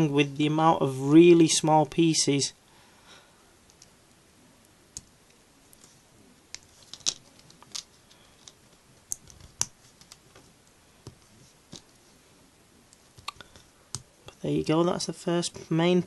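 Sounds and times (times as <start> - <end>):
plastic bricks clicking together: 6.8 - 9.7.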